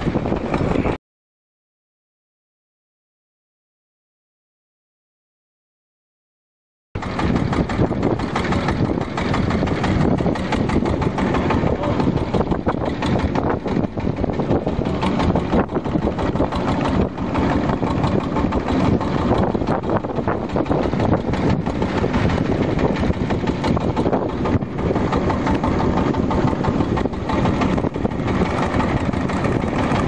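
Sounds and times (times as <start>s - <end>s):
motorboat engine running: 0.0s - 1.0s, 7.0s - 30.0s.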